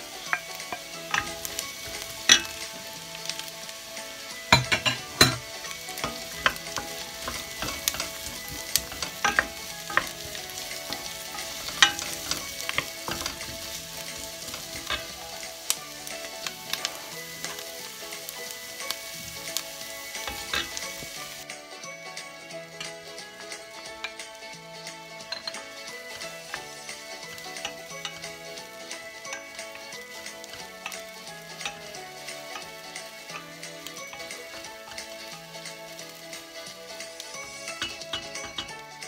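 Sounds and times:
vegetables sizzling in hot oil: 0:00.0 - 0:39.0
wooden spoon scraping a pot: 0:04.6 - 0:15.5.

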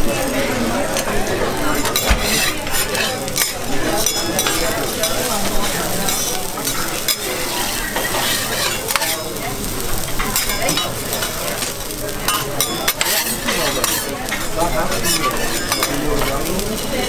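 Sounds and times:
eggplant sizzling on a griddle: 0:00.0 - 0:17.0
metal spatula scraping a griddle: 0:01.7 - 0:11.4, 0:12.3 - 0:16.5.

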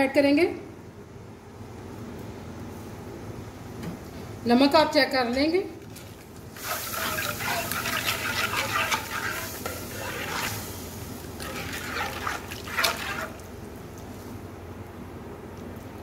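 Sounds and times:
liquid sloshing in pot: 0:05.8 - 0:14.2
spoon scraping metal pot: 0:06.6 - 0:10.7, 0:11.4 - 0:13.5.

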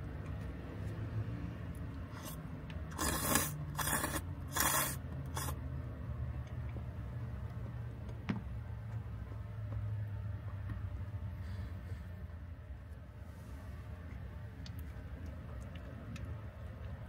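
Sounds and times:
noodles slurped: 0:02.1 - 0:05.7.

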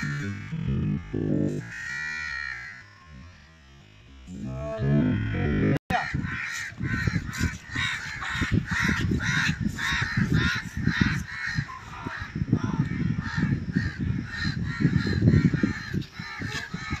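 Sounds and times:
low rumble: 0:00.0 - 0:10.9
crows cawing: 0:00.0 - 0:17.0.

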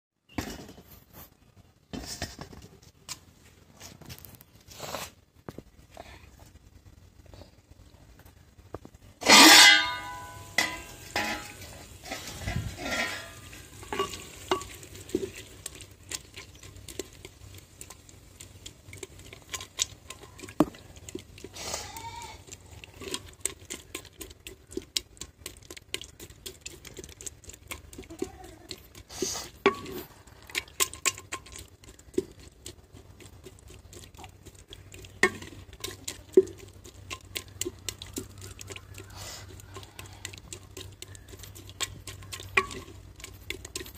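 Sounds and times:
wooden ladle scraping clay pot: 0:00.3 - 0:05.2, 0:09.1 - 0:43.9
metal lid clanging off pot: 0:09.2 - 0:14.8.

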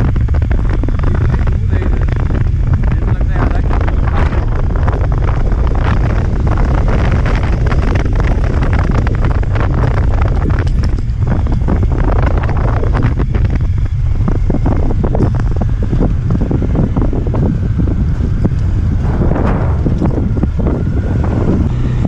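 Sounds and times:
motorcycle rumble: 0:00.0 - 0:22.0
wind buffeting microphone: 0:00.0 - 0:22.0.

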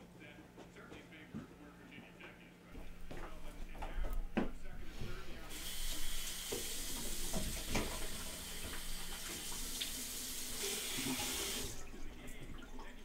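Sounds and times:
tap water running into sink: 0:05.5 - 0:13.0.

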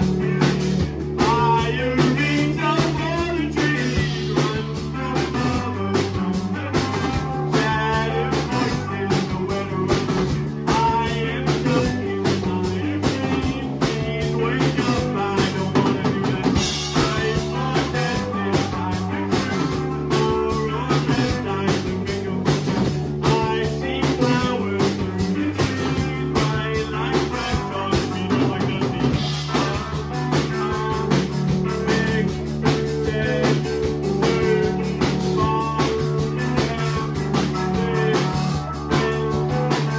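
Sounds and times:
man singing: 0:00.0 - 0:39.9
rock band playing live: 0:00.0 - 0:39.9.

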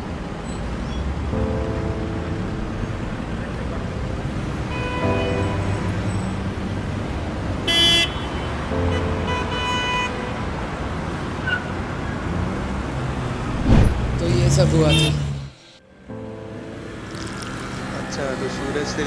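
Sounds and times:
road traffic: 0:00.0 - 0:19.0
vehicle horns honking: 0:04.6 - 0:06.4, 0:07.6 - 0:10.6, 0:14.5 - 0:15.7.

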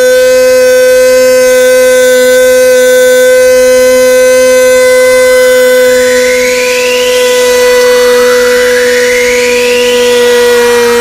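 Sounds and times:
faint rising tone: 0:05.0 - 0:11.0.

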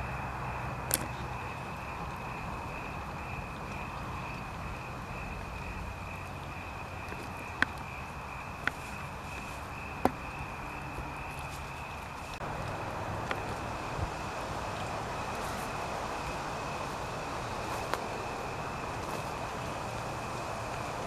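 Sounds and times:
crickets trilling: 0:00.0 - 0:21.0
low hiss: 0:00.0 - 0:21.0
sharp snaps: 0:00.9 - 0:01.2.

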